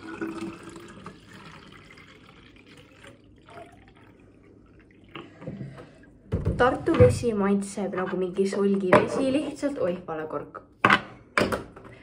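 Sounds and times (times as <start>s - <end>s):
water pouring into glass bottle: 0.0s - 6.1s.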